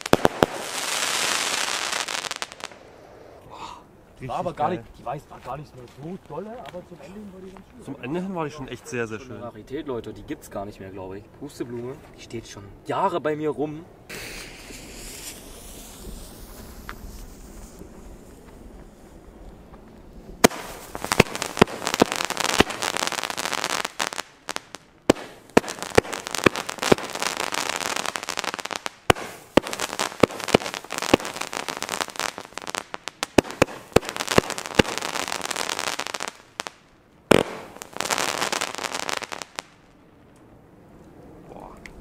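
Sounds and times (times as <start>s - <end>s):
firework bangs: 0.0s - 3.5s, 14.1s - 40.0s
firework comets hissing and crackling: 0.0s - 7.8s, 14.1s - 40.0s.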